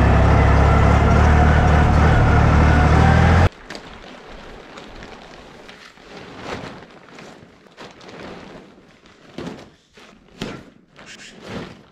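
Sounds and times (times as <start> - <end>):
plastic bag rustling on dirt: 3.5 - 9.8.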